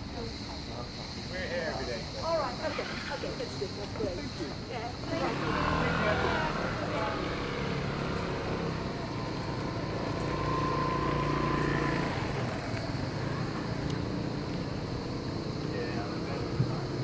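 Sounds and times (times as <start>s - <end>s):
vehicle engine passing: 5.0s - 17.0s.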